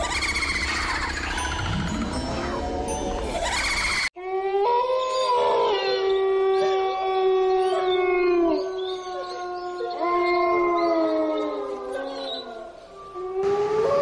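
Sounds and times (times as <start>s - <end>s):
dog howling: 4.4s - 12.6s.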